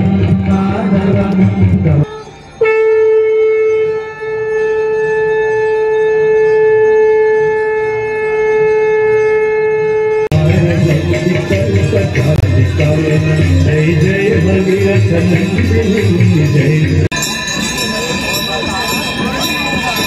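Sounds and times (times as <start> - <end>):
devotional singing with music: 0.0 - 2.2, 10.3 - 17.6
conch shell blown: 0.0 - 12.8.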